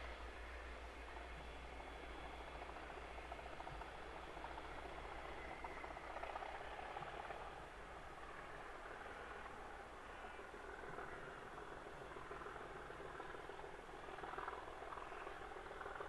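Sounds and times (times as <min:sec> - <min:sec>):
diesel train engines running: 0:00.0 - 0:16.0.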